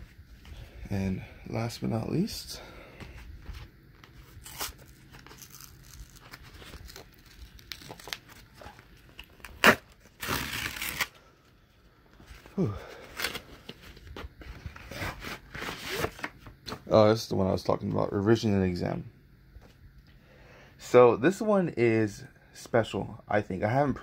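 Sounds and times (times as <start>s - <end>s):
cardboard crinkling: 4.0s - 11.1s
cardboard ripping: 4.3s - 11.1s, 14.6s - 16.3s.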